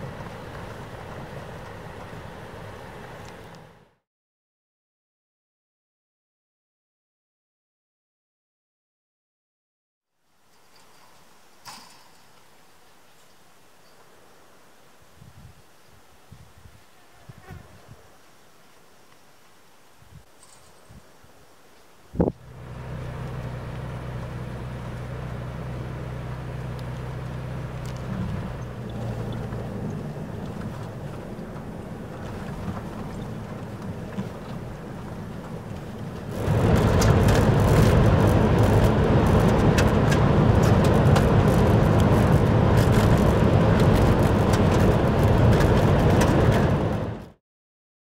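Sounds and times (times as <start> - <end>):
vehicle engine hum: 0.0 - 4.0, 22.2 - 47.4
tyre noise on gravel: 27.4 - 47.2.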